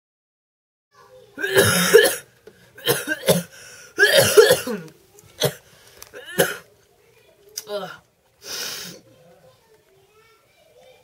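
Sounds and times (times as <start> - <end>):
boy coughing hard: 1.4 - 5.6, 6.2 - 6.6.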